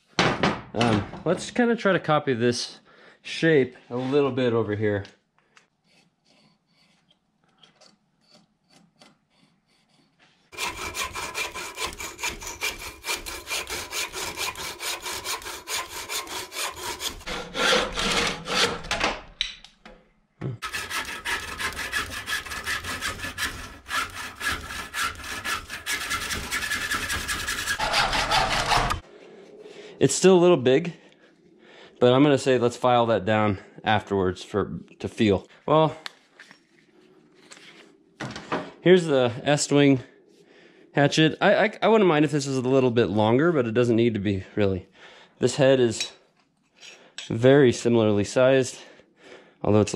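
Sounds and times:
hand saw cutting wood: 5.8 - 7.2, 7.8 - 19.0, 20.6 - 29.0.

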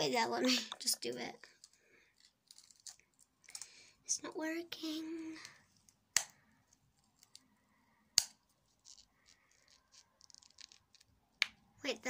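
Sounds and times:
small objects handled on a table: 0.7 - 3.8, 5.4 - 11.6.

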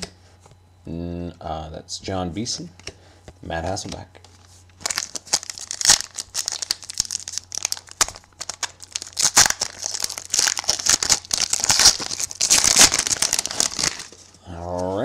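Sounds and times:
foil wrapper crinkling and tearing: 4.8 - 15.0.

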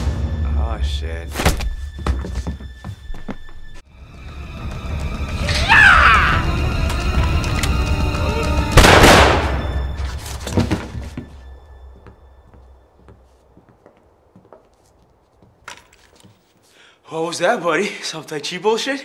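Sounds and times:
tense film music: 0.0 - 13.0.

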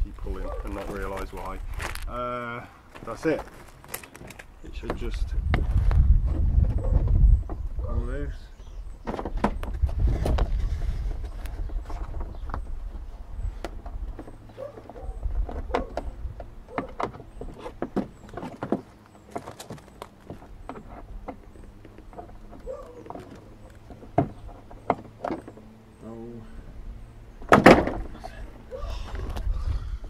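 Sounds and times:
plastic bumper clicking and creaking: 3.2 - 5.2, 13.6 - 25.7.

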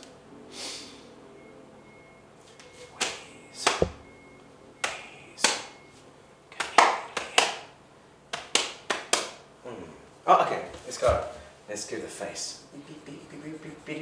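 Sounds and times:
low thump: 3.8 - 4.0.

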